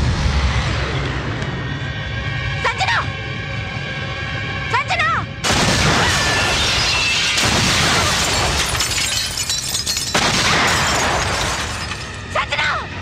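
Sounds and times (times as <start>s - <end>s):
dramatic film score: 0.0s - 8.1s.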